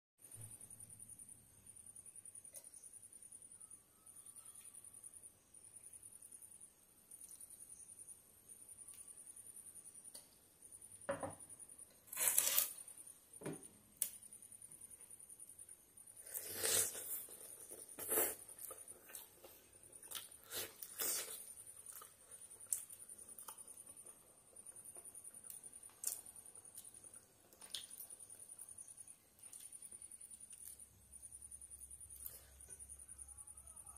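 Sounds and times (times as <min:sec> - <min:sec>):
mouth chewing: 0:16.2 - 0:24.2.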